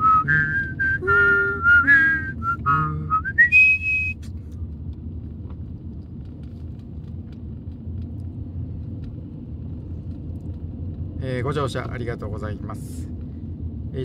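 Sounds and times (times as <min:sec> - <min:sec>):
car road and engine noise: 0:00.0 - 0:14.0
high held note of a tune: 0:00.1 - 0:02.4.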